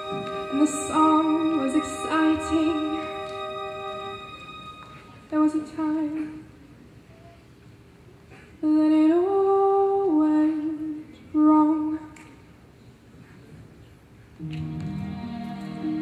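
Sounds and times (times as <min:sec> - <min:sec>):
woman singing unaccompanied: 0:00.4 - 0:03.6, 0:08.6 - 0:12.2.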